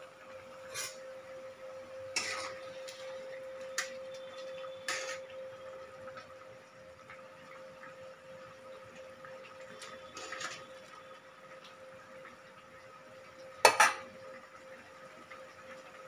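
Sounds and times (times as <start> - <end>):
faint steady hum: 0.0 - 16.0
spatula scraping a pan: 0.7 - 1.0, 2.1 - 2.7, 4.8 - 5.2
sharp knocks on a pan: 13.6 - 14.0.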